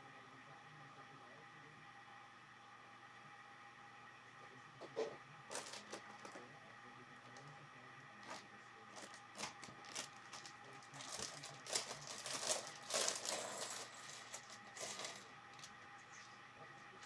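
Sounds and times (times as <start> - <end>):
plastic rustling: 5.5 - 6.4, 8.2 - 15.8.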